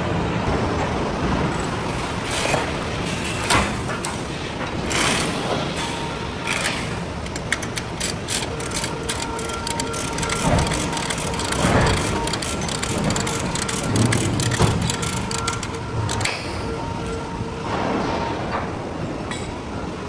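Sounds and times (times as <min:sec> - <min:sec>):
rapid irregular clicks: 0:06.5 - 0:16.4.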